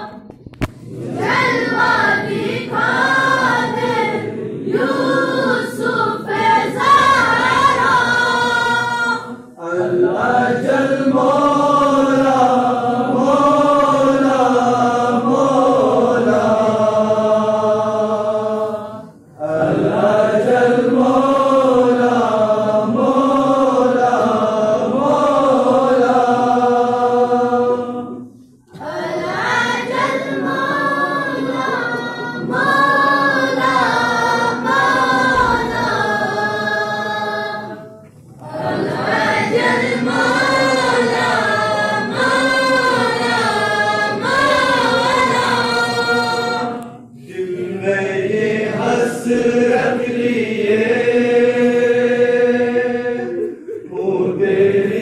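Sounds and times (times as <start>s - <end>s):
young men singing together: 0.8s - 55.0s.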